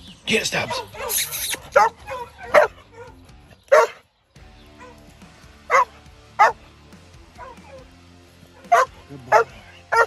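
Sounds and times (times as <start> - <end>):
puppy barking: 0.6 - 4.0, 4.7 - 5.1, 5.7 - 6.6, 7.3 - 7.9, 8.5 - 10.0
puppy yipping: 0.7 - 4.0, 8.6 - 10.0.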